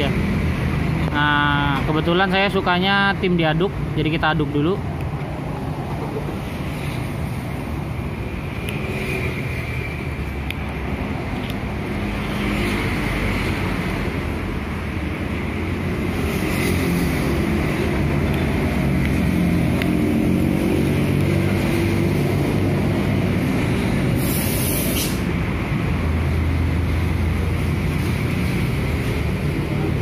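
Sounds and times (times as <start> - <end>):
cars and motorcycles passing: 0.0 - 30.0
traffic rumble: 0.0 - 30.0
short high hiss: 24.2 - 25.3.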